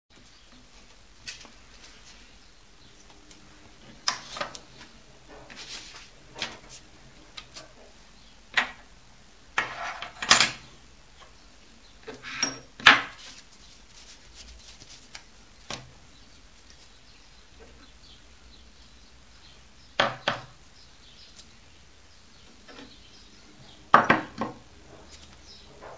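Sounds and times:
paper rustling: 3.9 - 6.8, 13.1 - 15.9.

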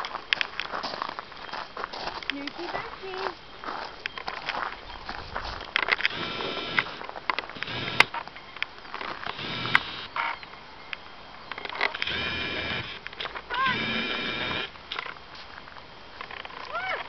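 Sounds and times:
sharp clicks: 5.6 - 15.2.

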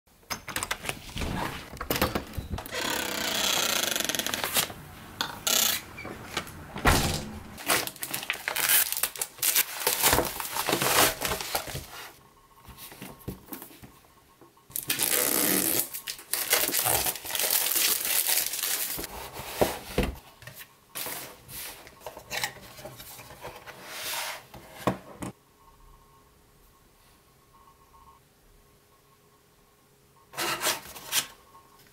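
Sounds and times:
packaging rustling and tearing: 2.7 - 4.8, 7.6 - 12.0, 14.7 - 19.1.

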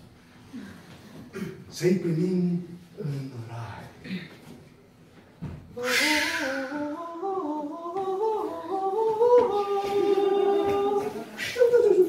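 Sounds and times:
person singing wordless melody: 5.8 - 12.0.

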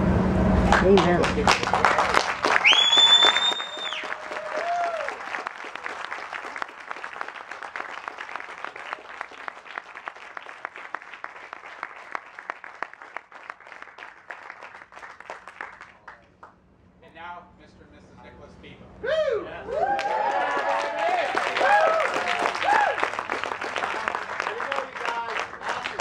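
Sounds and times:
audience applauding: 0.6 - 16.6, 19.7 - 26.0.

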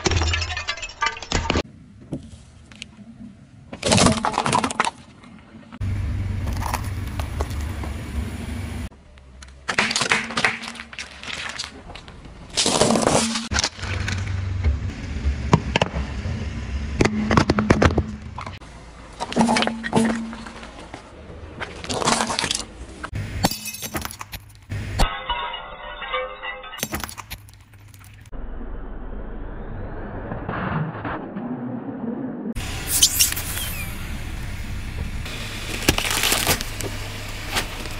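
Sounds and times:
objects crushed under car tyres: 0.0 - 1.6, 9.6 - 14.4, 35.7 - 37.9.

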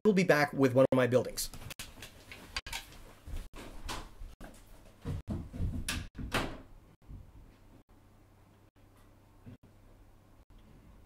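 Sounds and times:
door-like thuds: 5.0 - 7.4.

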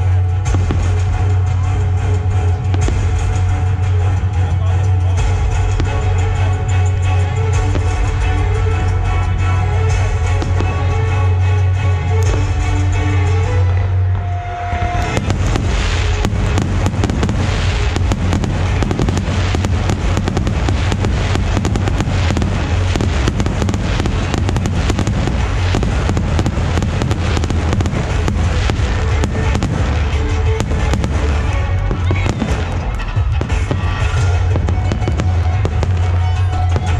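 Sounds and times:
deep rumble: 0.0 - 36.9
fireworks crackling and popping: 0.0 - 36.9
firework shells bursting: 15.0 - 36.9.

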